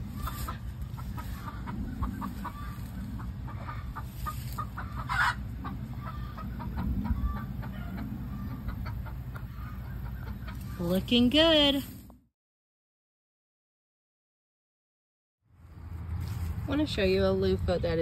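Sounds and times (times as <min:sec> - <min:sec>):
chickens clucking: 0:00.0 - 0:11.3.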